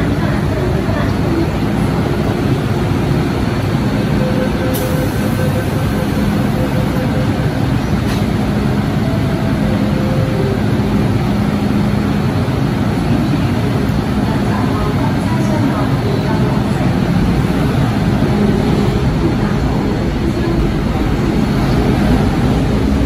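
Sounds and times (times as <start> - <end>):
station noise: 0.0 - 23.0
train equipment humming: 0.0 - 23.0
train doors shutting clicks: 4.3 - 8.9.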